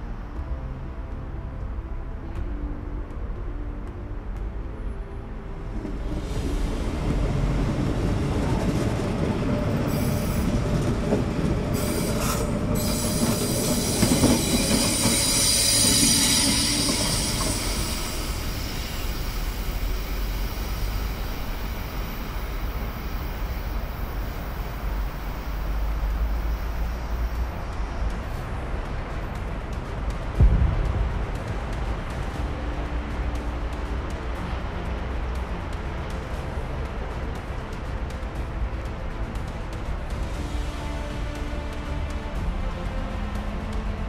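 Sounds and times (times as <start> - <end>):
low train rumble: 0.0 - 44.0
train wheels squealing on rails: 5.8 - 28.7.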